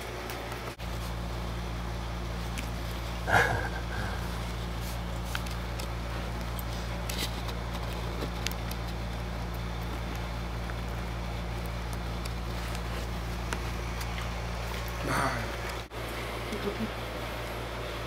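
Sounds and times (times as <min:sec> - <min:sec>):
low background hum: 0:00.0 - 0:18.0.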